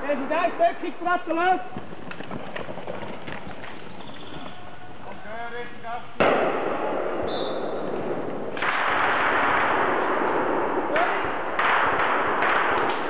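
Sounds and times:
machine gun firing bursts: 0:11.6 - 0:13.0.

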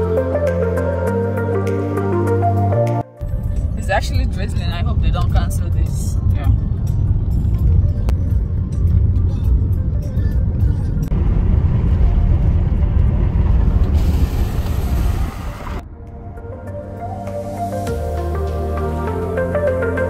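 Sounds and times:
background music: 0:00.0 - 0:12.7, 0:15.0 - 0:20.0
car road noise rumble: 0:03.2 - 0:16.7
hiss: 0:14.0 - 0:15.8.

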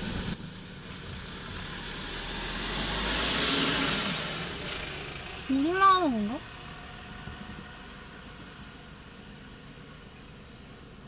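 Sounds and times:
car engine rumble from inside: 0:00.0 - 0:11.0.

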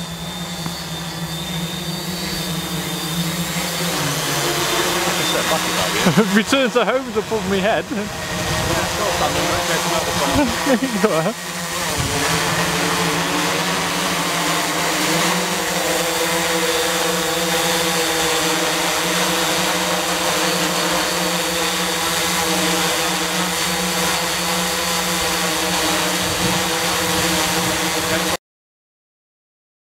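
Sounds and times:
drone propellers buzzing: 0:00.0 - 0:28.4.

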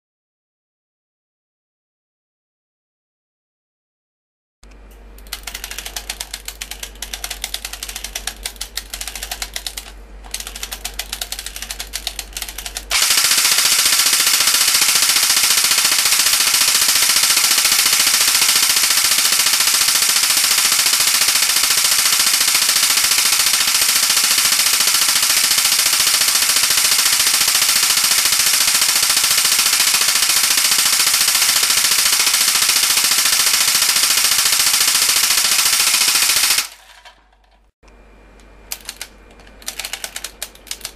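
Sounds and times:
airsoft gun firing full auto: 0:10.3 - 0:36.9.

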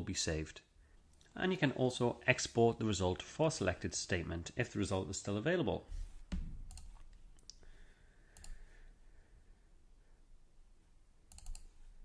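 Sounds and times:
computer mouse clicks: 0:06.6 - 0:07.6, 0:08.4 - 0:08.6, 0:11.3 - 0:11.8.

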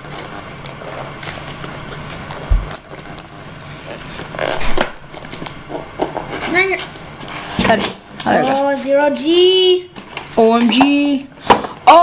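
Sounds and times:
tape ripping: 0:00.0 - 0:08.0
packing tape scratching and scraping: 0:00.0 - 0:09.0
dull knock on cardboard box: 0:02.5 - 0:02.7.

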